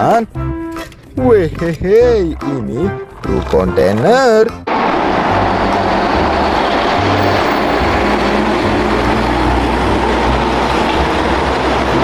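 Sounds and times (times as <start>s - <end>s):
truck diesel engine driving past: 4.7s - 12.0s.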